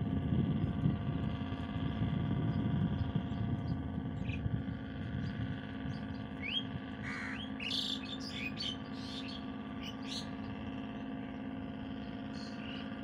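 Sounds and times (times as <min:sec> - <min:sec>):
distant boat engines droning: 0:00.0 - 0:13.0
birds chirping: 0:02.5 - 0:13.0
crows cawing: 0:07.0 - 0:09.3.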